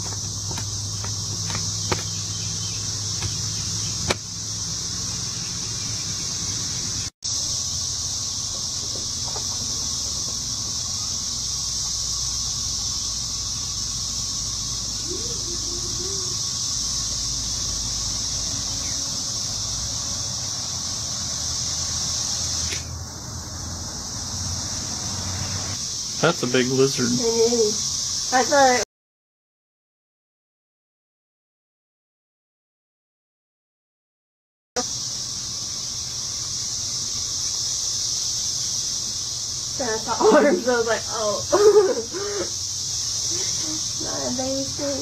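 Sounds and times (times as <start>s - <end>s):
insects droning in grass: 0.0s - 28.8s, 34.8s - 45.0s.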